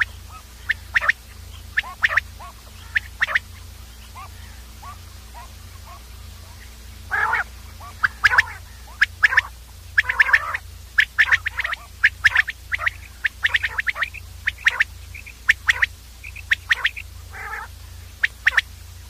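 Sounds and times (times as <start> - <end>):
quail calling: 0.0 - 19.0
steady low hum: 0.0 - 19.0.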